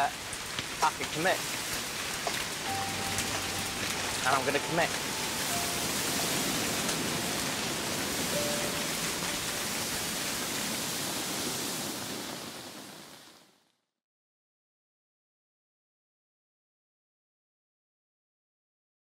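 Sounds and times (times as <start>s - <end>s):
heavy rain: 0.0s - 13.7s.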